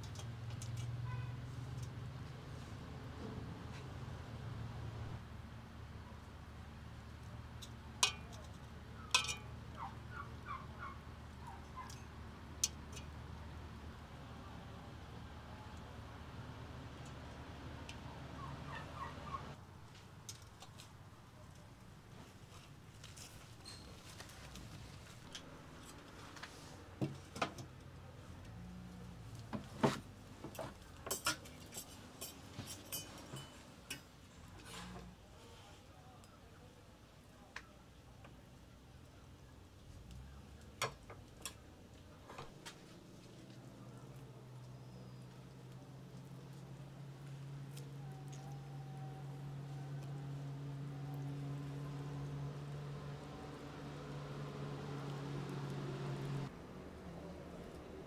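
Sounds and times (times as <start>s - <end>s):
metal tongs clinking on a pot: 7.6s - 9.9s, 31.1s - 34.1s
metal dishware clinking: 9.2s - 9.5s, 32.2s - 33.7s
fowl calling: 9.8s - 12.0s, 18.2s - 19.6s.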